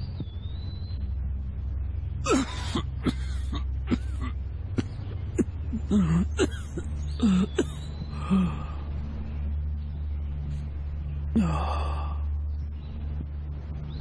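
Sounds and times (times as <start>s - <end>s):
low steady hum: 0.0s - 14.0s
elderly man coughing and gasping: 2.3s - 8.5s.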